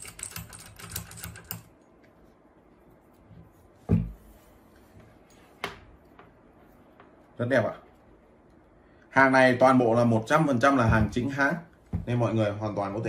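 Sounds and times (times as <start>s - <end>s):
heavy thump on wooden table: 3.8s - 4.2s.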